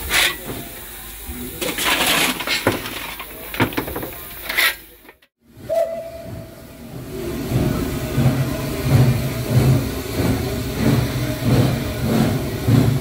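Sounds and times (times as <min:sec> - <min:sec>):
steam hissing bursts: 0:00.0 - 0:13.0
steam whistle: 0:05.6 - 0:06.7.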